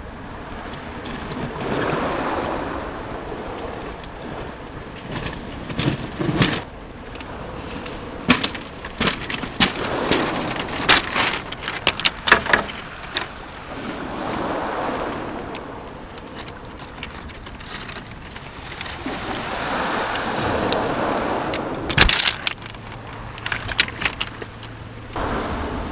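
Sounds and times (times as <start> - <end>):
waves on shingle beach: 0.0 - 25.9
clicks and rattles on pebbles: 0.5 - 2.5, 3.5 - 14.0, 14.8 - 19.6, 21.9 - 24.8.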